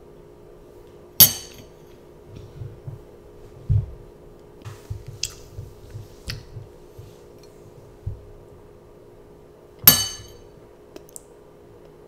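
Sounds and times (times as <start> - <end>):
metal spoon clinking against bowl: 9.9 - 10.4.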